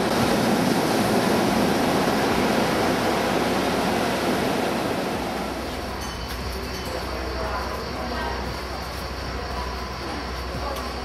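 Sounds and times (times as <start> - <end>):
surf washing onto pebble beach: 0.0 - 6.0.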